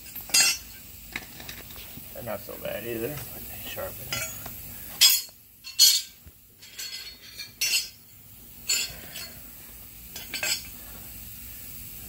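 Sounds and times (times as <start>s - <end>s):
metal blades clinking and scraping: 0.1s - 0.7s.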